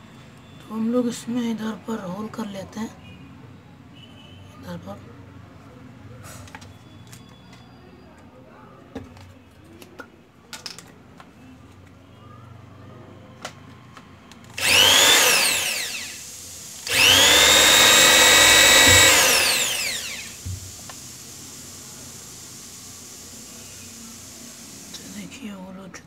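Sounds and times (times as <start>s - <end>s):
electric drill boring: 14.6s - 25.0s.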